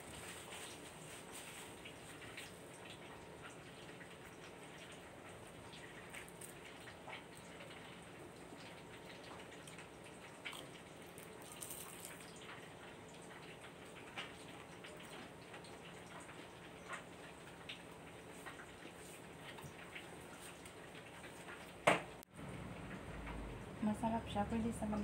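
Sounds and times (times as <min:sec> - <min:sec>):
chewing crunchy food: 0:05.7 - 0:17.8.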